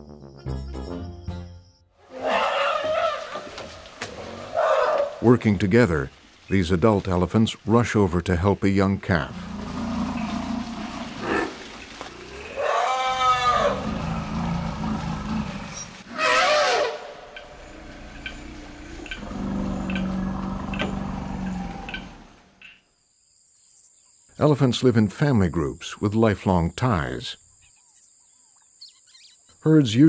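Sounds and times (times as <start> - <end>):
low elephant rumbling calls: 2.0 - 5.2, 9.3 - 22.6
elephants trumpeting: 2.0 - 5.4, 9.3 - 22.6
faint regular ticking: 17.3 - 22.8.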